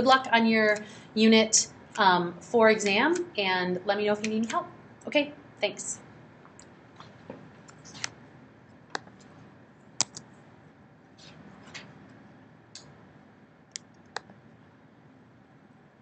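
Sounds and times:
laptop clicks and taps: 0:08.9 - 0:09.3, 0:10.0 - 0:10.3.

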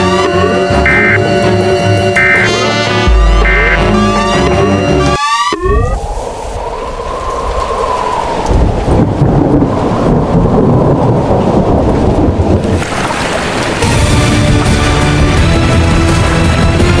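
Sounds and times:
heavy rain: 0:05.2 - 0:17.0
rolling thunder: 0:05.7 - 0:13.0.

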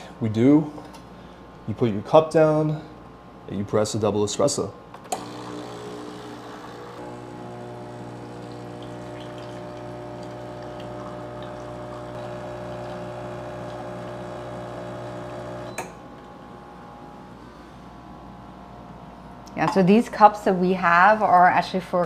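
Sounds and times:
espresso machine pump humming: 0:05.0 - 0:15.8.

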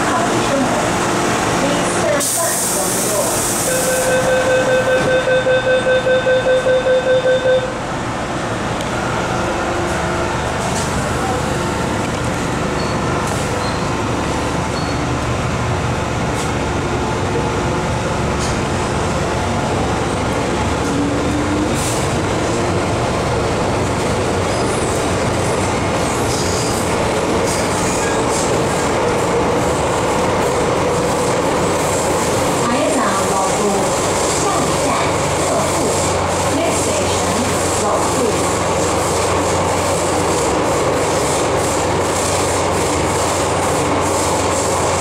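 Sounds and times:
electric train rumbling: 0:00.0 - 0:45.0
rapid door warning beeps: 0:03.7 - 0:07.7.

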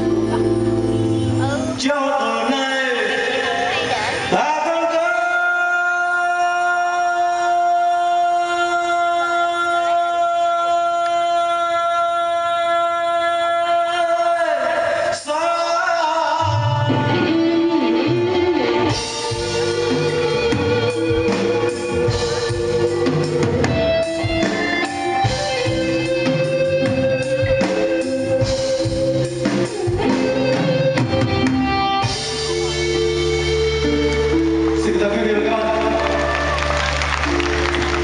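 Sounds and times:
bass guitar: 0:00.0 - 0:02.1, 0:16.4 - 0:38.0
electric guitars: 0:00.0 - 0:04.4, 0:16.4 - 0:38.0
live band playing: 0:00.0 - 0:38.0
man singing: 0:01.4 - 0:18.2.

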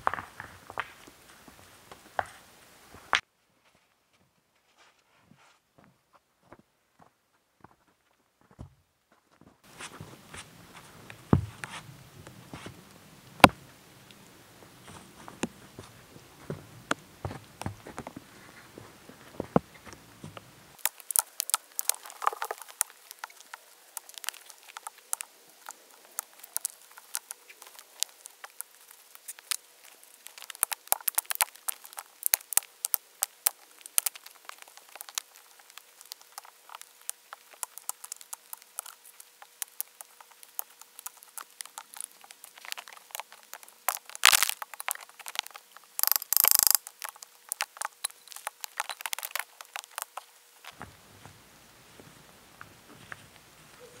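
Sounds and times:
stones clacking and scraping: 0:00.0 - 0:02.4, 0:14.8 - 0:50.8.

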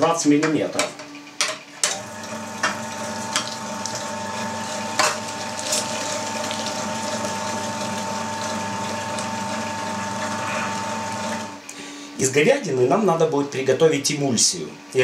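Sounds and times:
electric meat grinder running: 0:01.9 - 0:11.6.

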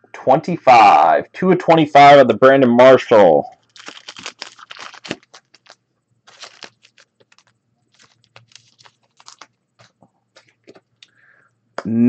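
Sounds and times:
trading cards sliding and rustling: 0:03.8 - 0:11.1.

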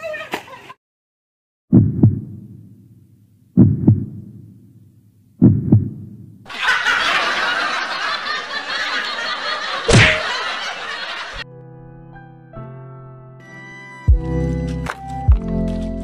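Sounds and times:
heartbeat thumps: 0:01.7 - 0:02.6, 0:03.6 - 0:04.6, 0:05.4 - 0:06.4.

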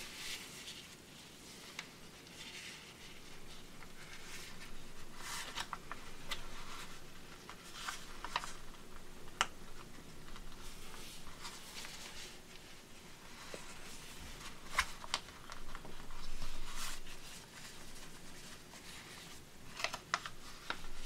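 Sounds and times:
paper rustling and crinkling: 0:00.0 - 0:21.0.

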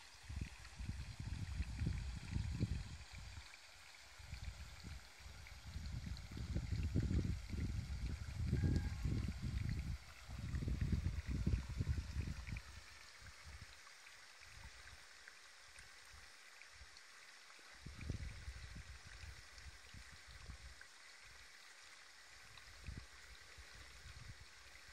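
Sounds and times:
soft outdoor hiss: 0:00.0 - 0:07.6, 0:12.5 - 0:24.9
wind rumble on microphone: 0:00.2 - 0:03.4, 0:04.2 - 0:12.8, 0:17.8 - 0:20.7, 0:22.4 - 0:24.9.

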